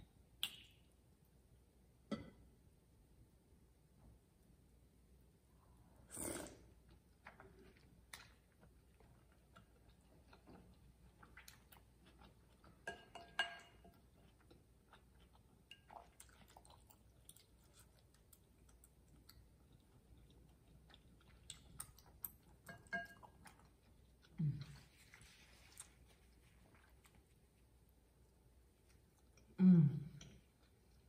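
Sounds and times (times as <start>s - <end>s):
noodle slurp: 6.0s - 6.8s
quiet chewing: 6.1s - 31.0s
spoon clinking against bowl: 12.8s - 14.0s, 22.7s - 23.3s.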